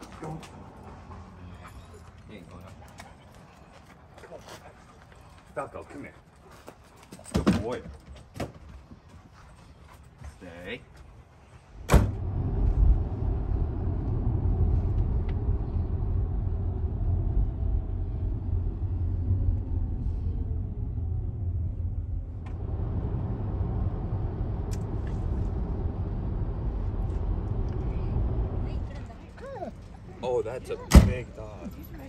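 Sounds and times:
car road and engine rumble: 0:11.7 - 0:32.0.

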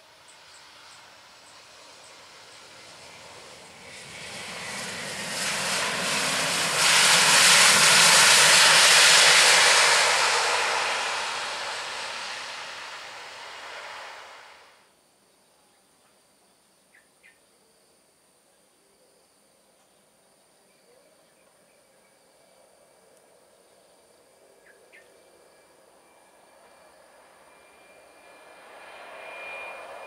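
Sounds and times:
jet engines roaring: 0:00.1 - 0:14.8, 0:26.2 - 0:30.0.

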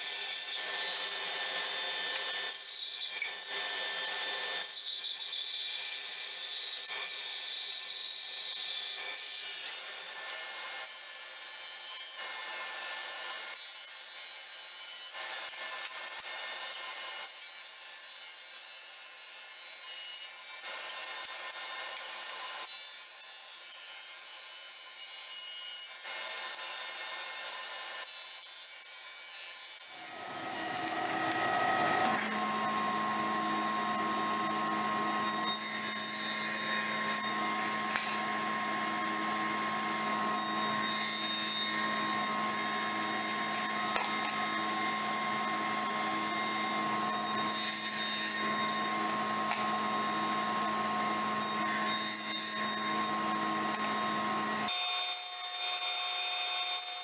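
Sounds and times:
bandsaw cutting a board: 0:00.0 - 0:57.0
drum sander whining: 0:29.9 - 0:54.7.

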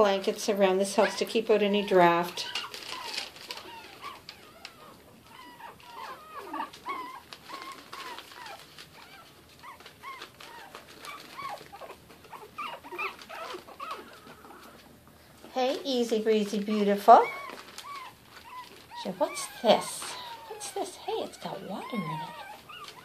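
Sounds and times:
puppies whining and whimpering: 0:00.2 - 0:15.0, 0:15.7 - 0:23.0.

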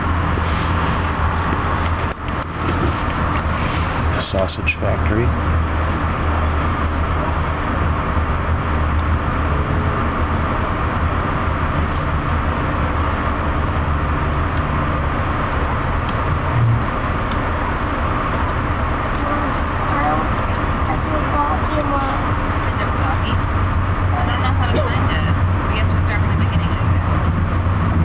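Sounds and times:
train coach rumble with low hum: 0:00.0 - 0:28.0
low bump: 0:16.0 - 0:17.6.

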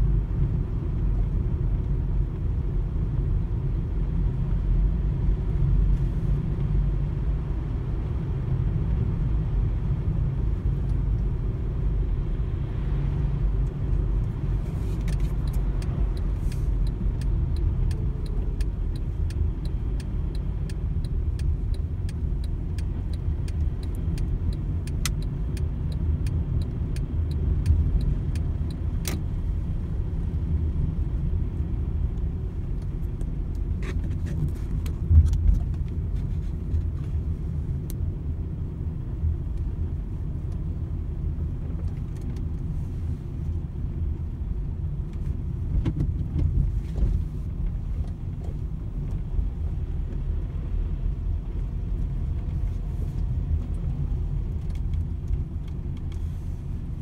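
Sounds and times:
car road and engine rumble: 0:00.0 - 0:57.0
light ticks: 0:15.0 - 0:29.6, 0:51.6 - 0:56.3.

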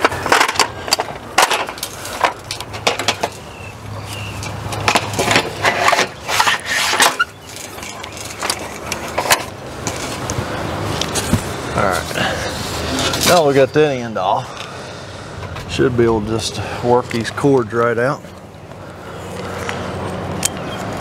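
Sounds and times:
metal tube clanking and rattling: 0:00.0 - 0:03.4, 0:04.4 - 0:10.1.

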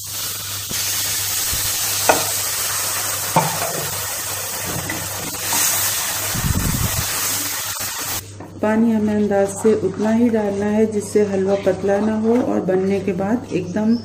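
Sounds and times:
water sizzling in hot pan: 0:00.0 - 0:08.2
wooden spatula scraping: 0:09.4 - 0:13.2.

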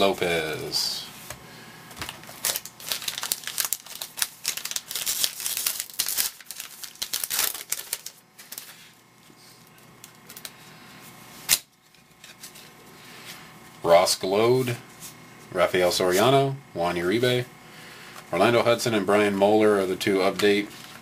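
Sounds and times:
cards rustling: 0:00.0 - 0:08.9, 0:20.0 - 0:21.0
wrapper tearing and crinkling: 0:02.0 - 0:08.8.

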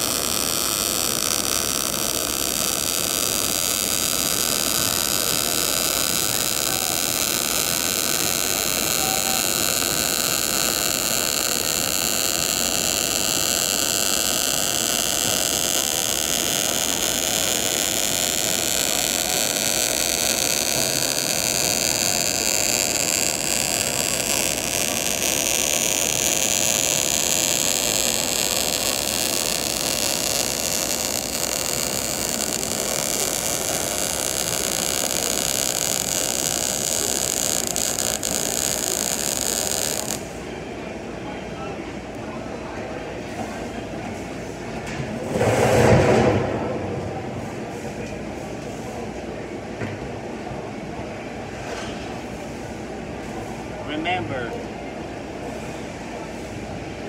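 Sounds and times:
welding arc hissing: 0:00.0 - 0:40.5.

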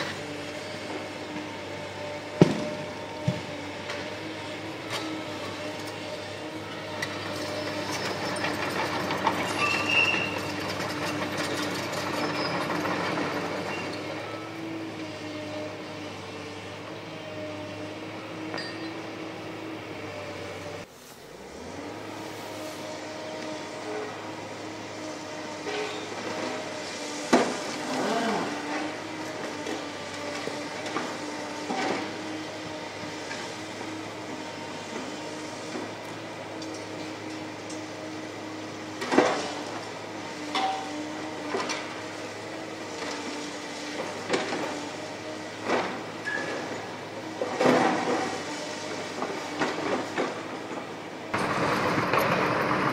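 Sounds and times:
hydraulic shear crunching concrete: 0:00.0 - 0:16.6, 0:23.7 - 0:52.9
diesel engines running: 0:00.0 - 0:52.9
steel squealing and grinding on concrete: 0:05.5 - 0:14.7, 0:25.5 - 0:29.1, 0:46.2 - 0:47.2
high metallic squeal: 0:09.4 - 0:10.7.

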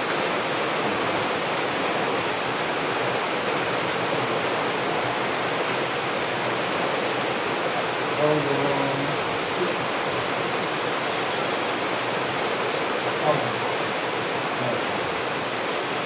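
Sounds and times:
heavy rain falling: 0:00.0 - 0:16.0.

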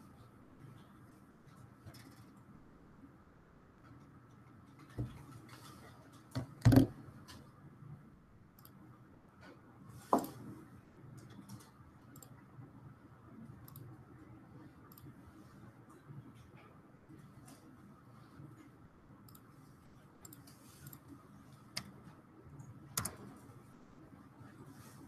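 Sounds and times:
faint room hum: 0:00.0 - 0:25.0
faint clicks and taps: 0:03.8 - 0:07.6.

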